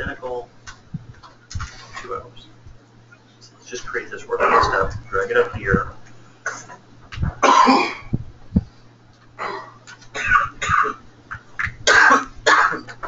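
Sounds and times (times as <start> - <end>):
steady low hum: 0.0 - 13.0
person coughing: 4.4 - 4.9, 6.4 - 6.8, 7.4 - 8.1, 9.4 - 11.0, 11.8 - 13.0.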